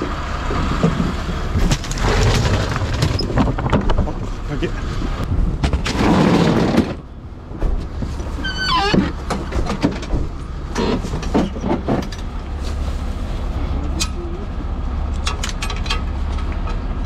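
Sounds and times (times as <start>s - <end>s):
gear knocking and clattering: 0.0s - 4.5s, 8.9s - 12.4s
truck engine humming: 0.0s - 5.8s, 6.9s - 17.0s
roller shutter rattling open: 0.6s - 4.4s, 5.6s - 7.2s.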